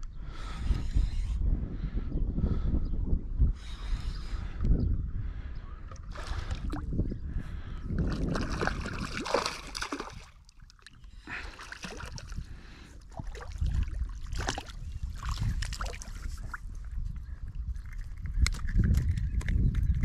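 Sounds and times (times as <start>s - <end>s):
river water splashing: 8.2s - 12.4s, 13.1s - 16.5s.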